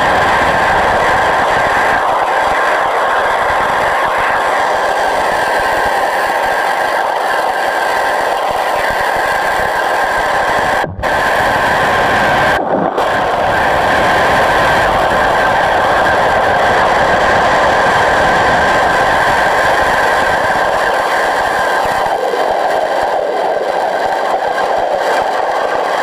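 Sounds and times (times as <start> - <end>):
pressure washer spraying underwater: 5.4 - 15.0.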